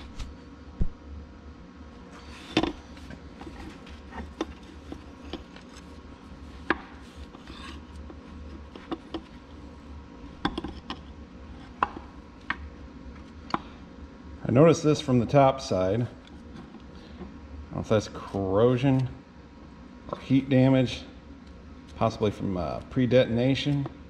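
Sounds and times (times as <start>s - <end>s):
metal parts rubbing: 7.0s - 8.0s.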